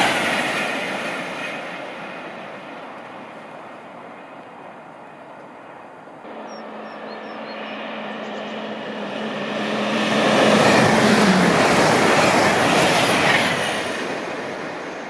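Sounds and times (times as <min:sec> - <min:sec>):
train approaching at speed: 0:00.0 - 0:15.0
train rumble receding: 0:05.1 - 0:15.0.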